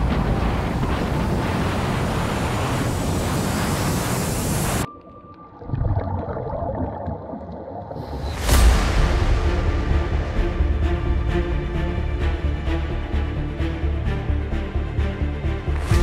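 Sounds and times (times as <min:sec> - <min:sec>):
wind buffeting microphone: 0:00.0 - 0:04.9
exhaled bubbles rumbling: 0:04.9 - 0:08.6.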